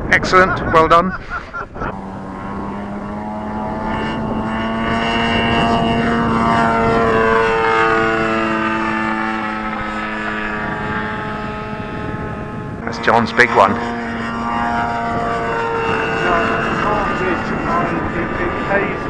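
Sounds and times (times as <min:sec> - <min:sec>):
model plane engine droning: 0:00.8 - 0:19.0.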